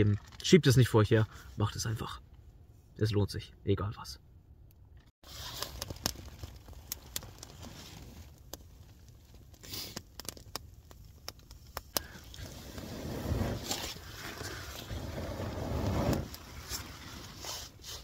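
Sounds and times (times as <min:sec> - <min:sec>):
wood fire crackling: 0:05.2 - 0:18.0.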